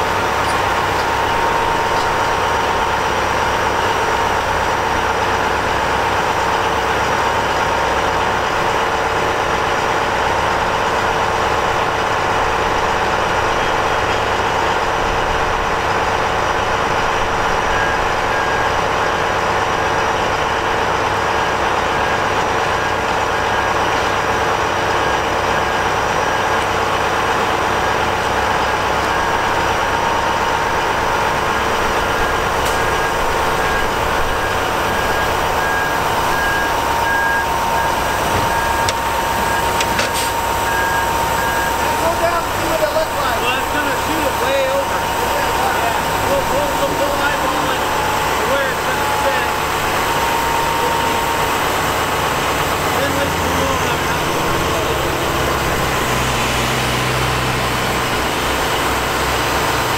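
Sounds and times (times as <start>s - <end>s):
diesel engine running: 0.0s - 59.9s
steady whine: 25.0s - 59.9s.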